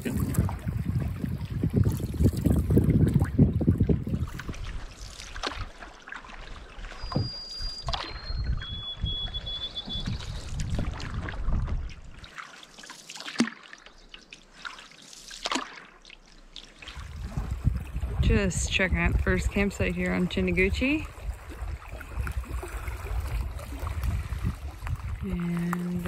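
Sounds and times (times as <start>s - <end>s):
canoe paddle strokes: 0.0s - 26.0s
water splashing and trickling: 0.0s - 26.0s.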